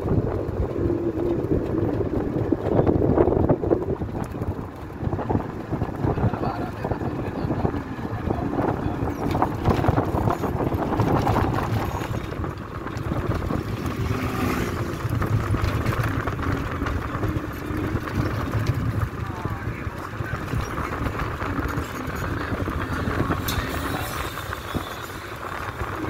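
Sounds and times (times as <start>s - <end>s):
auto-rickshaw engine: 0.0s - 26.0s
wind buffeting microphone: 0.0s - 26.0s.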